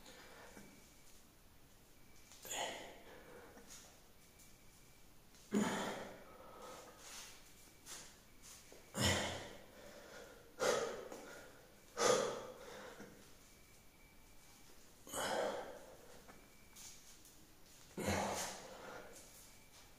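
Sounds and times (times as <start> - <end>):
man breathing heavily: 0.0 - 0.8, 2.4 - 3.9, 5.5 - 7.4, 8.8 - 13.4, 15.0 - 16.4, 17.9 - 19.3.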